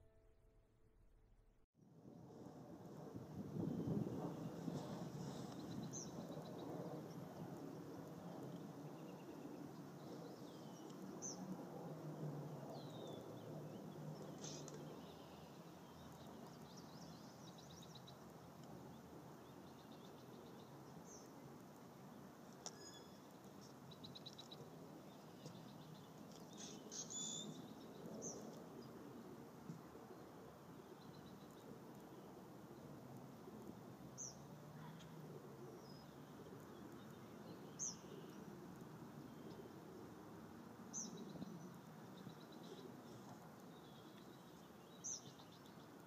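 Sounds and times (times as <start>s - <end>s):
songbirds chirping and trilling: 12.6s - 32.9s, 34.2s - 38.6s.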